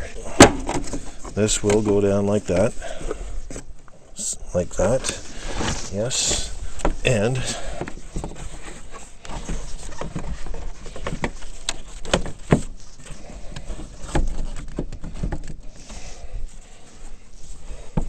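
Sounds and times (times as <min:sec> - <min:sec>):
plastic parts clicking and knocking: 0:09.2 - 0:15.7.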